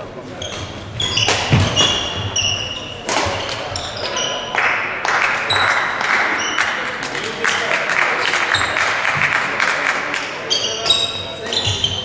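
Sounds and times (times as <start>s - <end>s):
voices: 0.0s - 12.0s
shoes squeaking on court: 0.3s - 4.5s, 5.5s - 6.8s, 10.4s - 12.0s
racket hitting shuttlecock: 0.5s - 4.3s.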